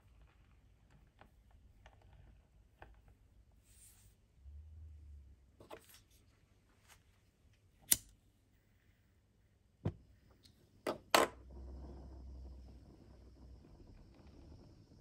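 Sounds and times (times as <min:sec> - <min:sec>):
low burner rumble: 0:07.8 - 0:15.0.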